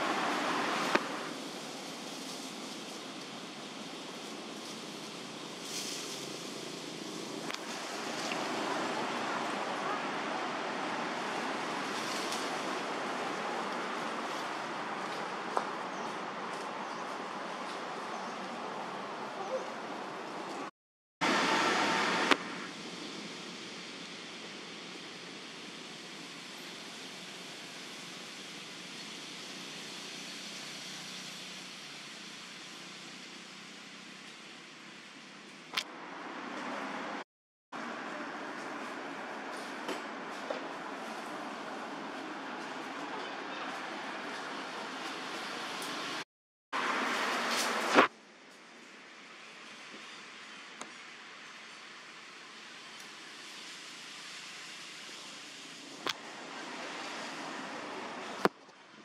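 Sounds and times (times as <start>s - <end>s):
outdoor background hiss: 0.0s - 59.0s
wind rushing through leaves: 0.0s - 59.0s.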